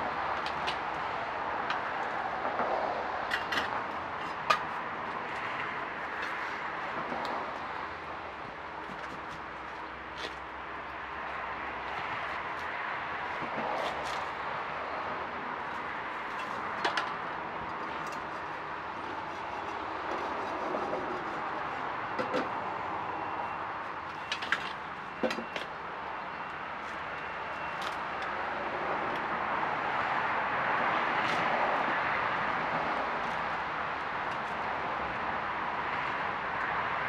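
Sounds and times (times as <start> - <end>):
steady background noise: 0.0 - 37.0.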